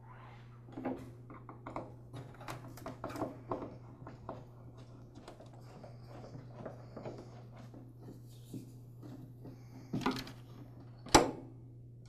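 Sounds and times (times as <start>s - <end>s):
low steady hum: 0.0s - 12.0s
screwdriver clicking and scraping metal: 1.4s - 8.1s.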